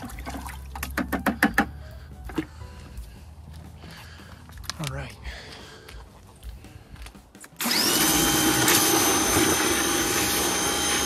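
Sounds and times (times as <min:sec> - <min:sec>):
pressure washer motor whine: 0:07.6 - 0:11.0.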